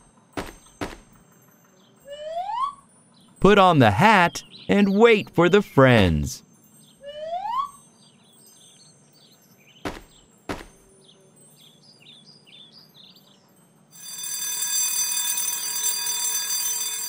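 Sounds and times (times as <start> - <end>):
faint birdsong: 0.0 - 13.9
thuds of objects dropping: 0.4 - 1.2, 9.9 - 10.9
alarm clock ringing: 13.9 - 17.0.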